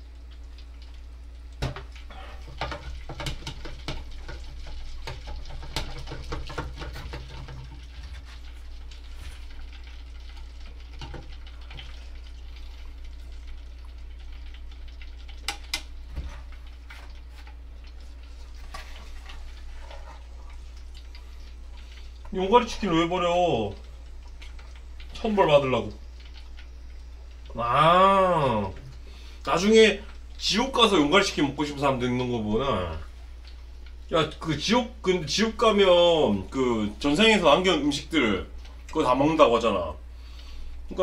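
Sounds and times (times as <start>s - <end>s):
chicken nuggets sizzling in oil: 0.0s - 41.0s
clicks and taps of stirring: 1.6s - 8.3s, 10.2s - 12.0s, 14.9s - 18.0s.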